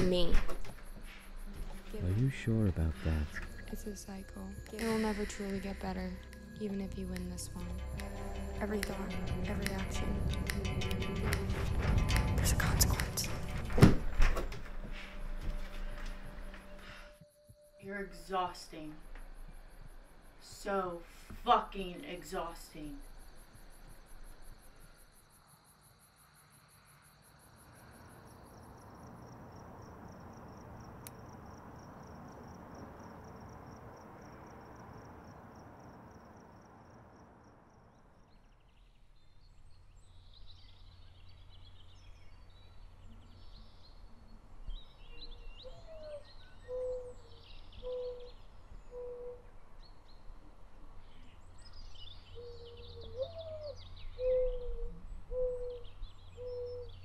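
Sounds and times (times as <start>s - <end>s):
crickets trilling: 0.0s - 11.1s, 15.2s - 38.5s
birds chirping: 0.0s - 17.2s.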